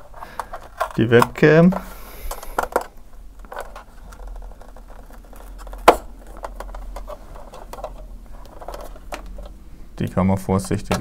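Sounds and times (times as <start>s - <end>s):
laptop casing scraping and rustling: 1.8s - 9.5s.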